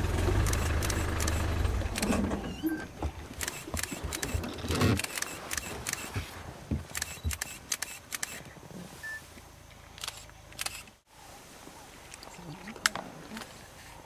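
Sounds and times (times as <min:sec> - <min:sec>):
camera shutters clicking: 0:03.3 - 0:06.2, 0:06.9 - 0:08.4, 0:10.0 - 0:11.0.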